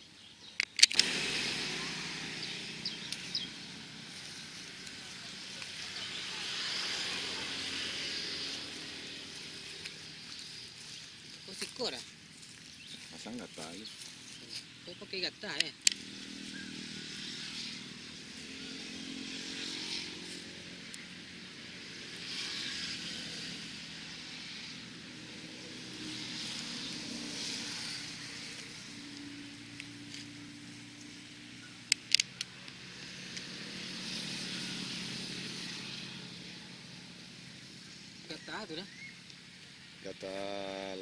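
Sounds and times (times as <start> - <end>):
distant road traffic: 0.0 - 41.0
motorcycles passing: 0.0 - 41.0
sharp clicks: 0.5 - 1.5, 15.4 - 16.1, 31.8 - 32.8.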